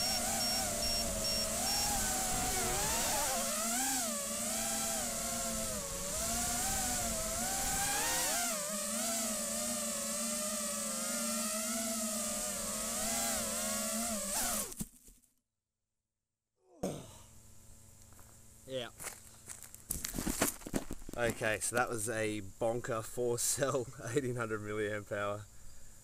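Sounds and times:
quadcopter motors whining: 0:00.0 - 0:14.8.

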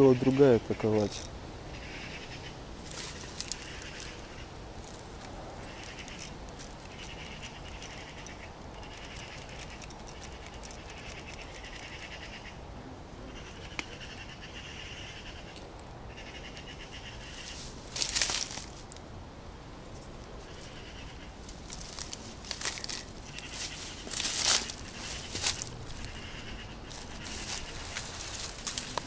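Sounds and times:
faint clicks and rustles: 0:21.4 - 0:29.0.

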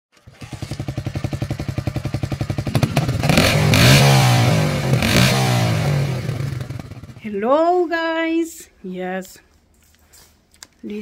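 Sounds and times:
motorcycle engine idling and revving: 0:00.2 - 0:07.3.

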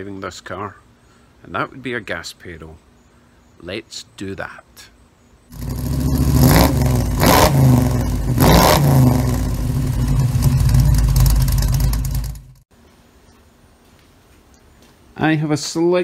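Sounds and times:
car engine revving: 0:05.5 - 0:12.6.

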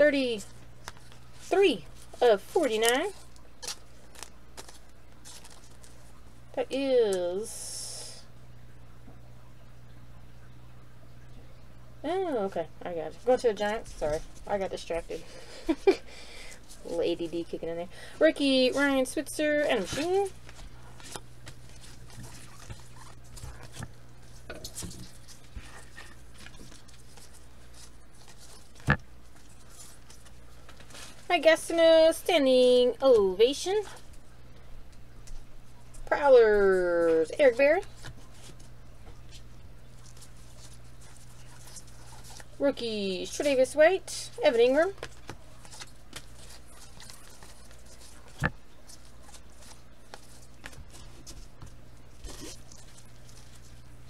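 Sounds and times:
trading cards rustling and clicking: 0:00.0 - 0:06.3, 0:13.1 - 0:17.7, 0:18.3 - 0:32.1, 0:36.7 - 0:54.0
low steady hum: 0:00.0 - 0:54.0
cards sliding and tapping: 0:00.8 - 0:02.2, 0:02.8 - 0:06.0, 0:45.0 - 0:52.7.

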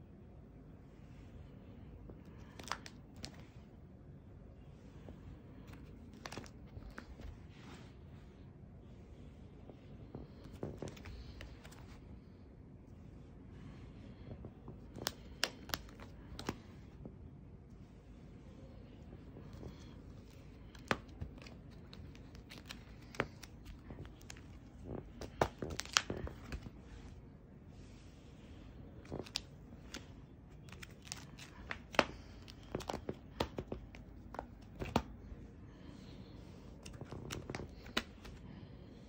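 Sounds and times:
plastic sleeve pages crinkling: 0:02.2 - 0:03.6, 0:05.6 - 0:07.4, 0:10.2 - 0:12.0, 0:14.4 - 0:16.9, 0:19.1 - 0:27.2, 0:28.4 - 0:39.0.

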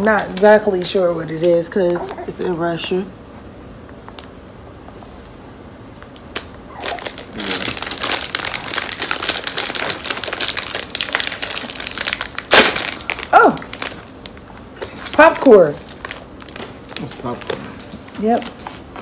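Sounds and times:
plastic snack bag crinkling: 0:06.1 - 0:19.0.

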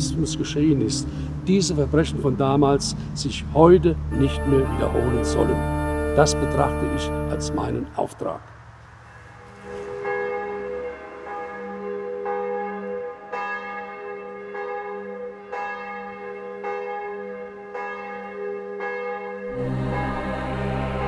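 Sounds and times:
church bells tolling: 0:00.0 - 0:08.2, 0:09.2 - 0:21.0
music with deep low part: 0:19.5 - 0:21.0.

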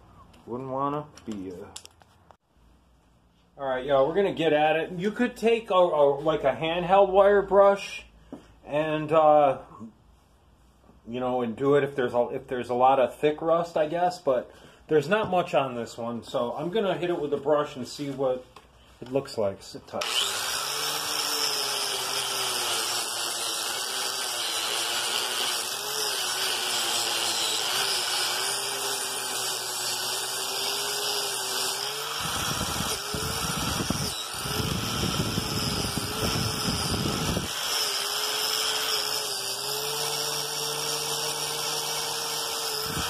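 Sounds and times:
angle grinder motor whine: 0:20.0 - 0:43.0.

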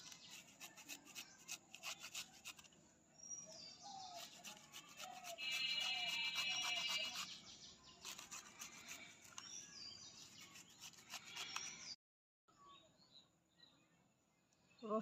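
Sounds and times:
ginger rasping on a grater: 0:00.0 - 0:02.7, 0:04.0 - 0:07.4, 0:08.0 - 0:09.5, 0:10.1 - 0:11.8
birds chirping: 0:00.0 - 0:15.0.

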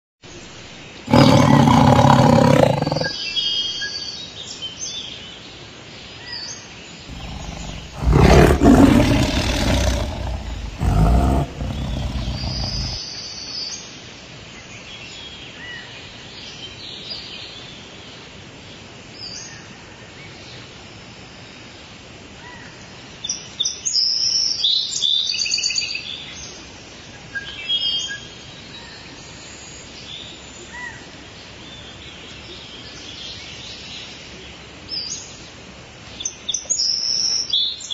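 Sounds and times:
big cat roaring: 0:01.1 - 0:03.2, 0:07.1 - 0:13.0
birds chirping: 0:01.1 - 0:03.2, 0:07.1 - 0:13.0.

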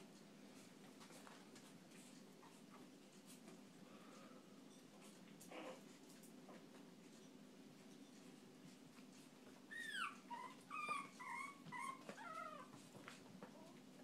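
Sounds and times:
puppy whining: 0:05.4 - 0:05.9, 0:09.5 - 0:14.0
puppy yipping: 0:09.7 - 0:12.8.

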